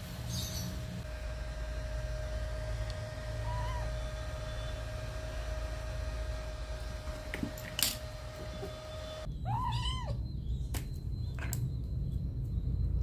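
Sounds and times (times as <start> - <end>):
kitten meowing: 3.4 - 3.9, 9.4 - 10.2.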